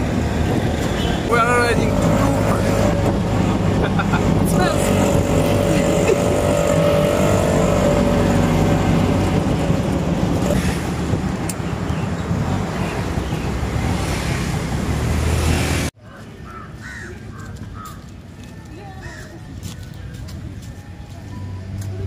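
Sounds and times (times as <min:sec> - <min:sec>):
wind rush: 0:00.0 - 0:15.9
auto-rickshaw engine drone: 0:00.0 - 0:16.6
outdoor ambience: 0:00.0 - 0:22.0.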